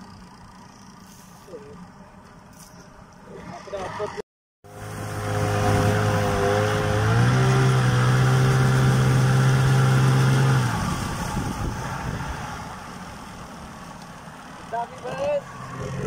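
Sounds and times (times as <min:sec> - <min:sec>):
outboard motor running: 0:04.7 - 0:11.8.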